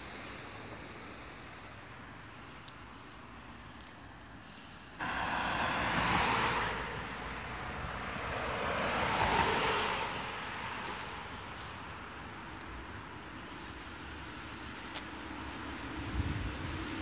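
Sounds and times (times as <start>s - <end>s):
traffic passing: 0.1s - 17.0s.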